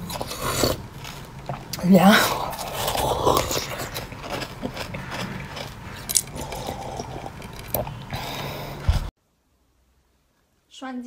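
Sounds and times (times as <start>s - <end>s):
teeth crunching ice: 0.0s - 8.2s.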